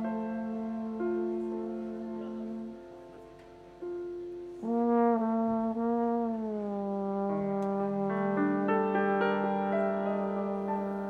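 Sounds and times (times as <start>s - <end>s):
soft sustained note: 0.0s - 5.2s
horns playing held notes: 4.6s - 11.0s.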